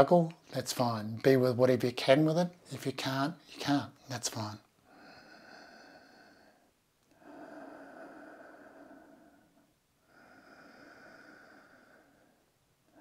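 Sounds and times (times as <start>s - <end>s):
person breathing slowly: 4.8s - 13.0s.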